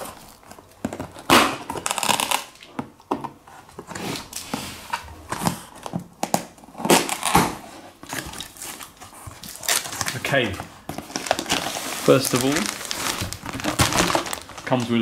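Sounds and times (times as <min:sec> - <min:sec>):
packing tape tearing: 0:00.0 - 0:02.8, 0:05.3 - 0:15.0
knife slitting packing tape: 0:01.3 - 0:02.6.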